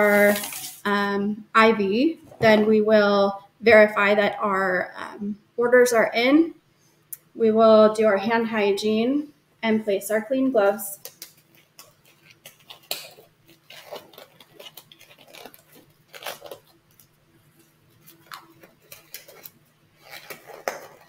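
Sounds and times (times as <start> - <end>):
rubber gloves crackling and rustling: 0.0 - 1.0, 10.8 - 21.0.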